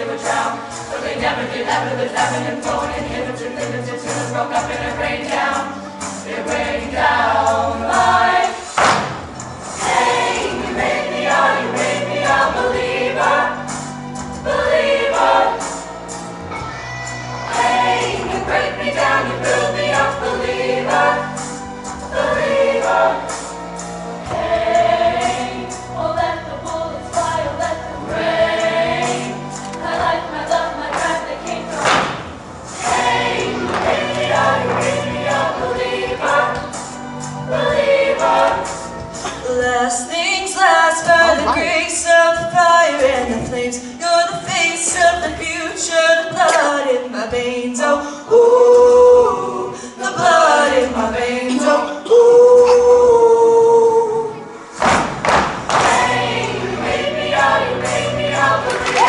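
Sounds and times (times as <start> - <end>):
choir singing in parts: 0.0 - 59.0
accompaniment with sustained bass: 41.1 - 41.8.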